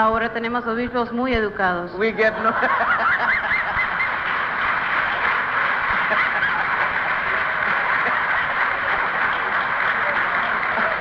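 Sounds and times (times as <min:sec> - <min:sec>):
audience laughing: 0:02.2 - 0:11.0
audience applauding: 0:02.5 - 0:11.0.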